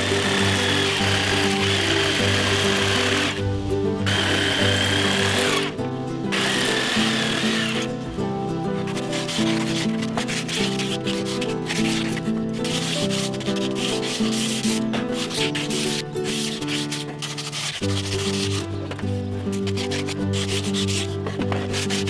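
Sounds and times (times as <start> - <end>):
sanding block rubbing wood: 0.0 - 3.4, 8.8 - 18.7, 19.5 - 22.0
background music sustained notes: 0.0 - 22.0.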